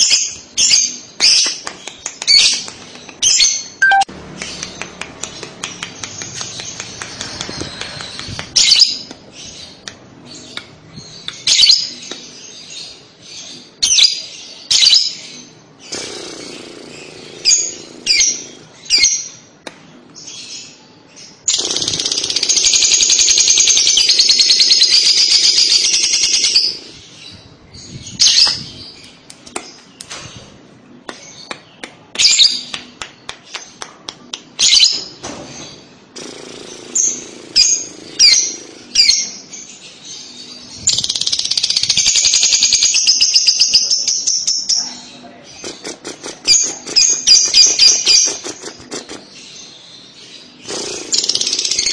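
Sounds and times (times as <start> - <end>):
lovebird chattering trill: 3.2 - 4.6
lovebird chirps: 3.2 - 4.8.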